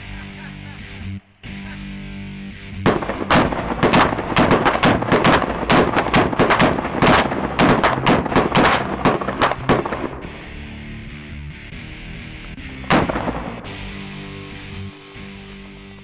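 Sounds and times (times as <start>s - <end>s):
rapid gunfire: 2.9s - 10.3s, 12.9s - 13.8s.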